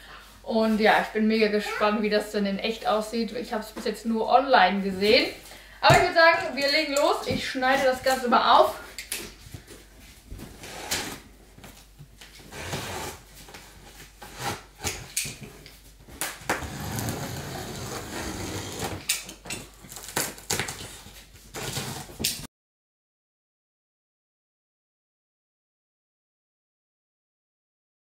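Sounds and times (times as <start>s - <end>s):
box cutter slicing tape: 16.5s - 19.3s.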